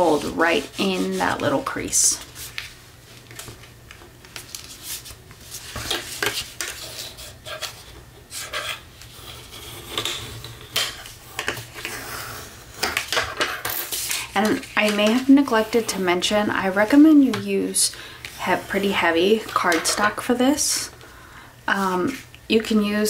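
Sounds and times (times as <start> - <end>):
hands sliding over paper: 0.0 - 3.5.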